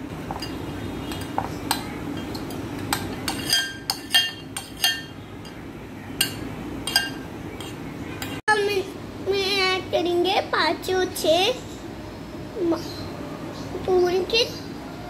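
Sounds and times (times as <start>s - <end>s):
metal spoon clinking glass bowl: 0.3s - 5.6s, 6.2s - 8.4s.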